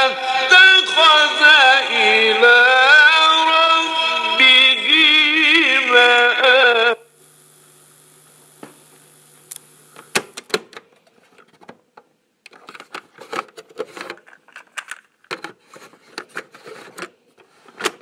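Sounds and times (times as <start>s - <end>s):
steady low hum: 6.9s - 10.4s.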